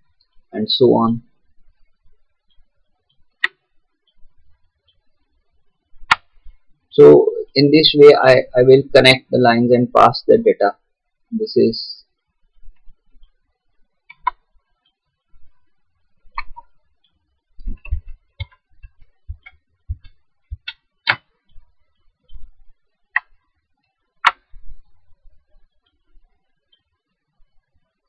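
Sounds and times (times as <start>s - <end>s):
computer mouse clicking: 2.5s - 4.2s, 6.1s - 6.4s, 14.1s - 14.4s, 16.3s - 21.6s, 23.1s - 23.4s, 24.2s - 24.5s
soft low thuds: 17.6s - 20.7s.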